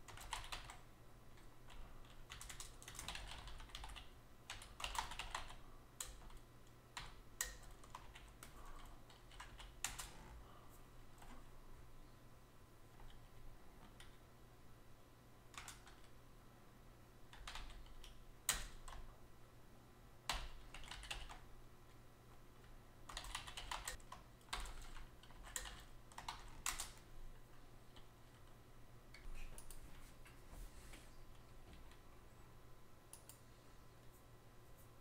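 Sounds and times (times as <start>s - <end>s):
computer keyboard typing: 0.0s - 0.8s, 1.4s - 10.3s, 13.0s - 14.2s, 15.5s - 16.2s, 17.3s - 19.1s, 20.3s - 21.5s, 23.1s - 27.1s, 33.1s - 33.4s.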